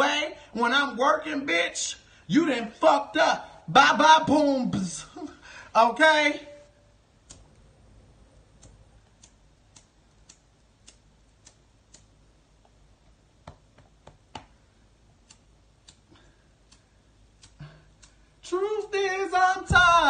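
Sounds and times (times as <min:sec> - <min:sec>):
lighter clicking: 0:08.6 - 0:12.1, 0:15.2 - 0:18.2.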